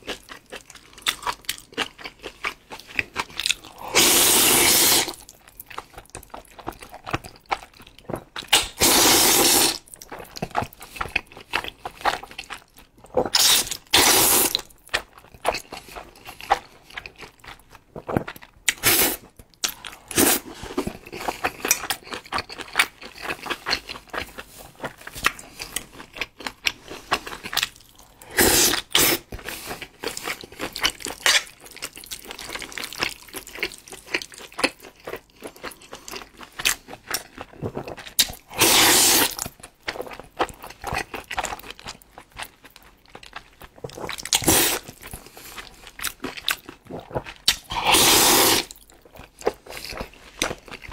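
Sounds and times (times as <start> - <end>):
wet chewing and lip-smacking: 0.0 - 50.9
man slurping noodles: 3.9 - 5.2, 8.7 - 9.8, 13.4 - 14.5, 28.3 - 29.2, 38.6 - 39.3, 47.7 - 48.7.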